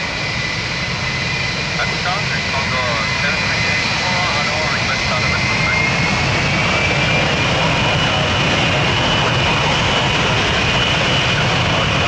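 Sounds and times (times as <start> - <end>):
high engine whine: 0.0 - 12.0
jet engines running: 0.0 - 12.0.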